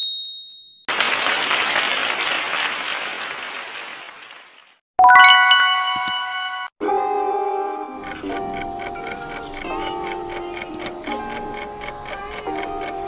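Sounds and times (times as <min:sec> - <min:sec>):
recorded applause: 0:00.9 - 0:04.8
bright chiming jingle: 0:05.0 - 0:06.7.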